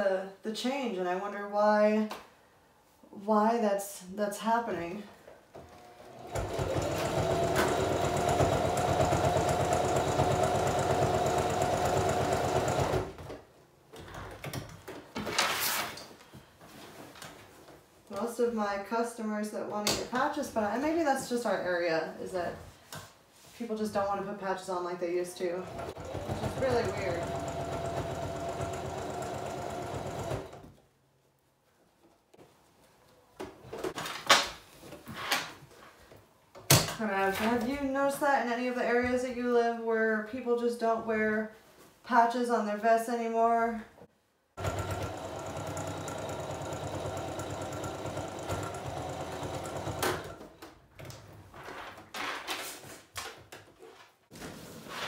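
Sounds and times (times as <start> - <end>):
sewing machine stitching: 5.6 - 13.3, 25.6 - 30.7, 44.6 - 50.6.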